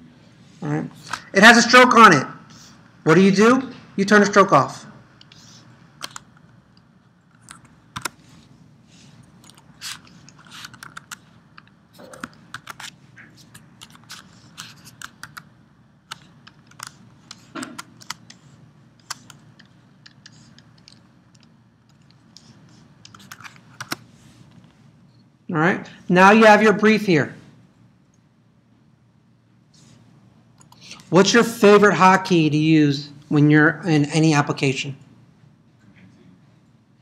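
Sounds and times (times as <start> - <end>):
faint room hum: 0.0 - 37.0
keyboard and mouse clicking: 6.0 - 6.3, 7.3 - 8.2, 9.4 - 12.9, 13.5 - 15.5, 16.1 - 24.0.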